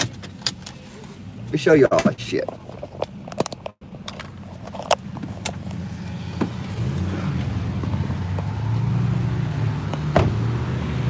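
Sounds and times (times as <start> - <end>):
low vehicle rumble: 0.0 - 11.0
sharp clicks and knocks: 1.9 - 5.8.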